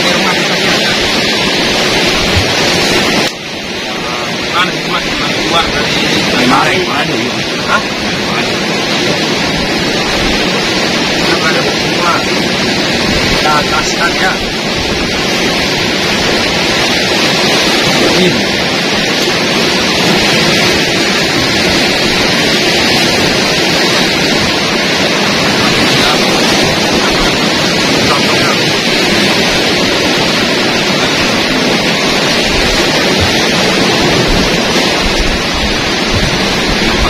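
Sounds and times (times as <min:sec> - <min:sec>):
surf breaking on rocks: 0:00.0 - 0:37.0.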